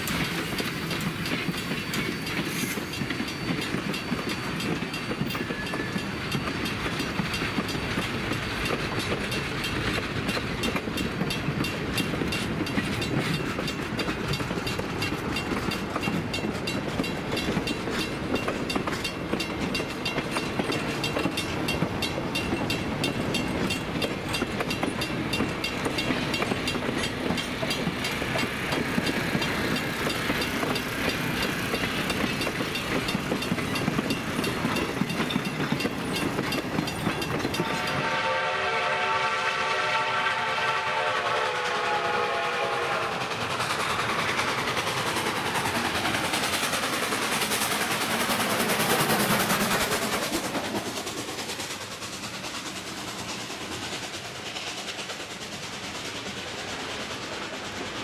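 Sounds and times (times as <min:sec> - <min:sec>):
train wheels clattering over rail joints: 0:00.0 - 0:38.2, 0:43.2 - 0:58.0
steam locomotive: 0:00.0 - 0:58.0
crossing bell ringing: 0:01.2 - 0:07.9, 0:31.9 - 0:38.2.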